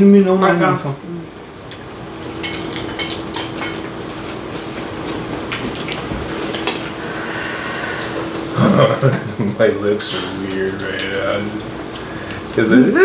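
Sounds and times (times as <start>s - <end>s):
chopsticks clinking against bowls: 2.4s - 3.9s.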